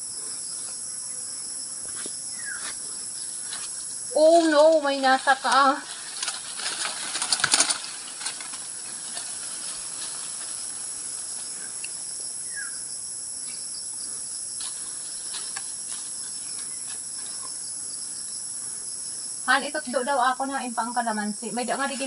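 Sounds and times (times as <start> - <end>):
insects shrilling: 0.0 - 22.0
brief crackles: 6.2 - 8.6.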